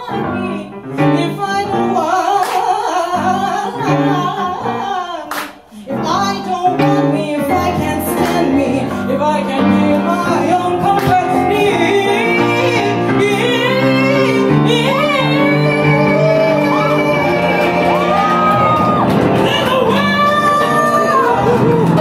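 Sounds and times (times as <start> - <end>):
woman singing ornamented melody: 5.9 - 18.4
grand piano playing: 5.9 - 22.0.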